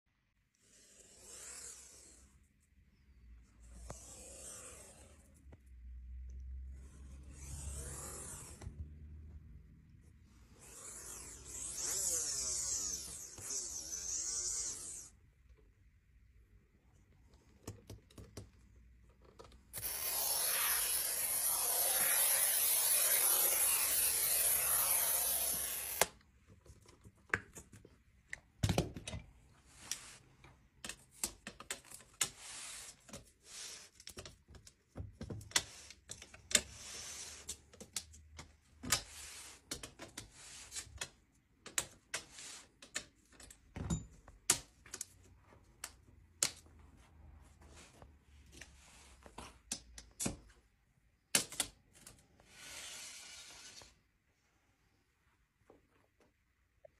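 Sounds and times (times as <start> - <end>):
glass cutter scraping glass: 10.6 - 15.1, 19.8 - 26.2.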